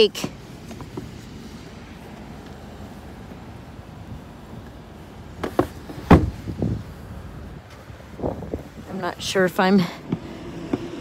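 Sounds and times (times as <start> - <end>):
seat clunking and knocking: 5.4 - 6.8.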